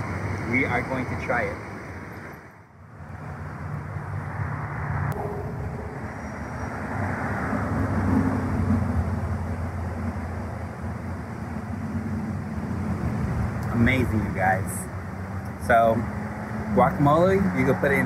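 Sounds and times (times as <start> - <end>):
rushing noise: 0.0 - 16.9
engine rumble: 0.0 - 18.0
low hum rising in pitch: 2.8 - 10.4.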